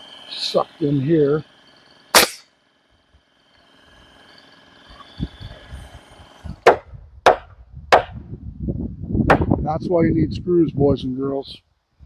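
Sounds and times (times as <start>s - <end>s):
sharp strikes on lumber: 2.1s - 2.5s, 6.6s - 8.2s, 9.3s - 9.6s.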